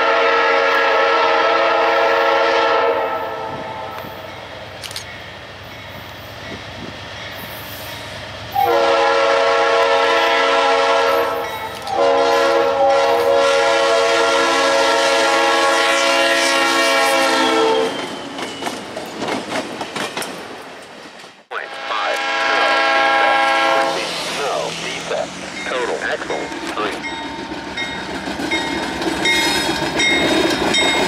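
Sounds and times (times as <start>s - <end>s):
locomotive air horn blasts: 0.0s - 4.2s, 8.6s - 18.0s, 21.5s - 24.7s
passing train rumble: 0.0s - 31.0s
wheels clacking over rails: 17.9s - 21.4s, 25.5s - 31.0s.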